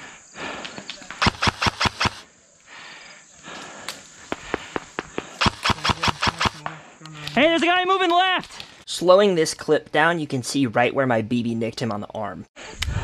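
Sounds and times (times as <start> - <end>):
airsoft guns firing: 1.2 - 2.2, 4.4 - 6.8.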